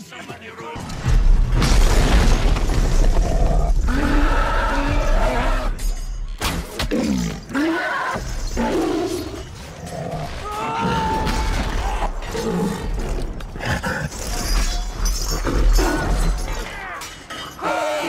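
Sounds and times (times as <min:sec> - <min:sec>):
crashes and impacts: 0:00.8 - 0:03.9
creature roars and growls: 0:03.1 - 0:05.8.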